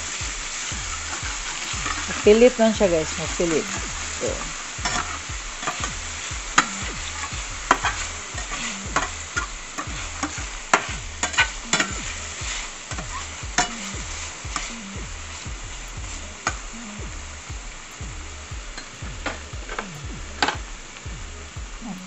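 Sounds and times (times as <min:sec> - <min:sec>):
chicken sizzling in frying pan: 0:00.0 - 0:21.9
metal clicking on pan: 0:04.8 - 0:06.0, 0:06.6 - 0:14.7.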